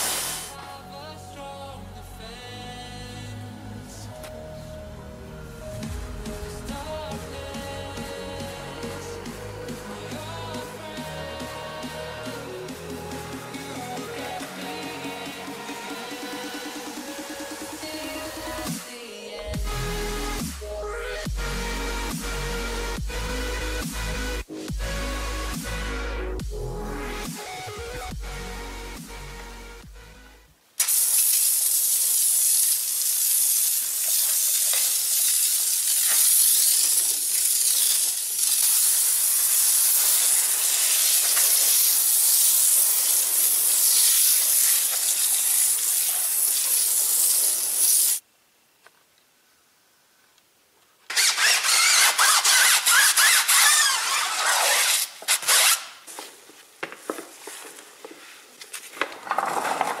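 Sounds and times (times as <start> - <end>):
foam sprayer hissing: 0.0 - 0.9, 5.1 - 20.6, 30.8 - 48.2.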